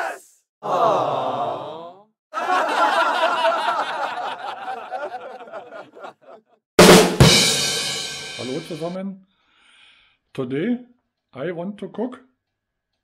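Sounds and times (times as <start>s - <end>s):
person laughing: 2.4s - 6.6s.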